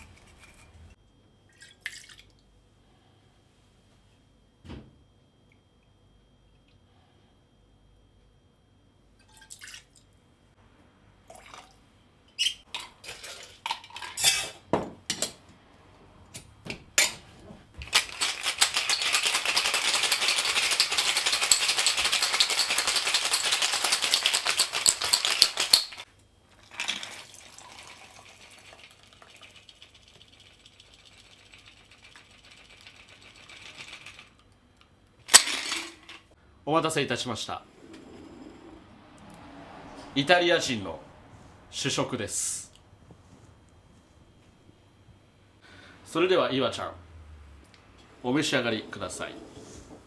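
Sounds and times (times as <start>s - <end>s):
cocktail shaker rattling: 17.8s - 26.0s, 28.3s - 34.4s
drink pouring into glass: 26.6s - 30.8s.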